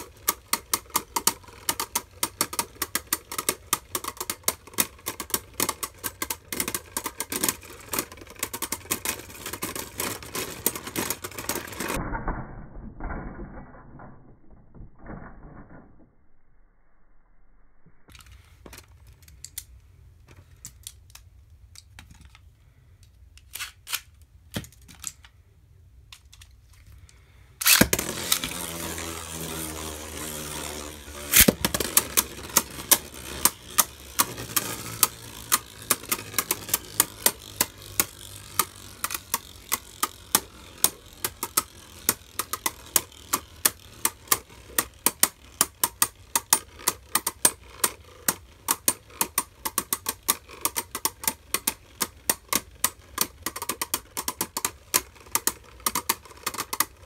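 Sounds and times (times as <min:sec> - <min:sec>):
spinning tops whirring: 0:00.0 - 0:12.0, 0:27.6 - 0:57.0
plastic clicks: 0:18.1 - 0:25.4
spinning tops clacking: 0:27.6 - 0:57.0.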